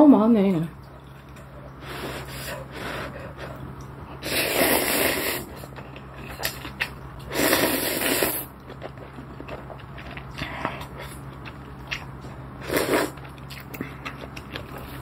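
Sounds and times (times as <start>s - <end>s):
noodles slurped: 4.2s - 11.1s, 12.6s - 15.0s.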